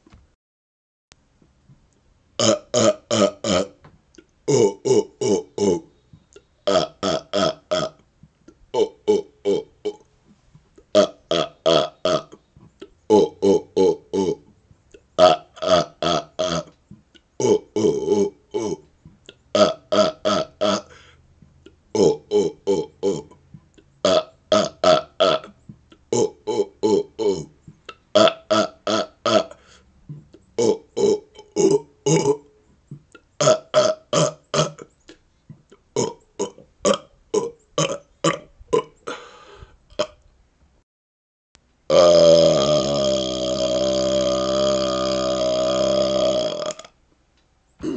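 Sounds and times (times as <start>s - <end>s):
man burping: 2.4s - 3.8s, 4.5s - 5.9s, 6.6s - 8.0s, 8.7s - 10.1s, 10.8s - 12.4s, 13.1s - 14.5s, 15.2s - 21.1s, 21.9s - 23.4s, 24.0s - 34.9s, 35.5s - 40.2s, 41.9s - 47.0s.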